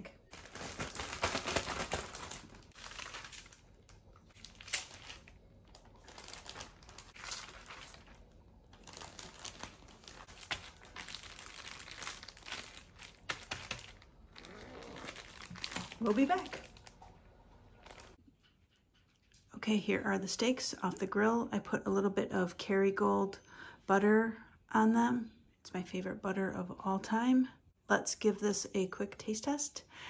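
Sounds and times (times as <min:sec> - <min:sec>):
plastic bag crinkling: 0:00.3 - 0:18.2.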